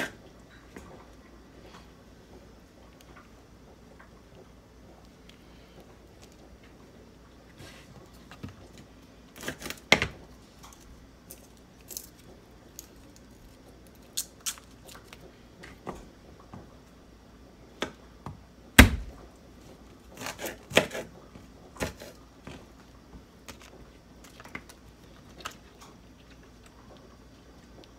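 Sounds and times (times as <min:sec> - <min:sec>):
knife on a cutting board: 0:20.2 - 0:21.1.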